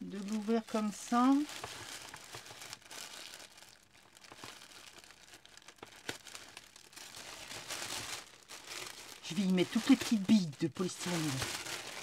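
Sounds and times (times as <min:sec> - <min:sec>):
tissue paper rustling: 0:00.0 - 0:12.0
small crackles and taps: 0:01.4 - 0:06.7.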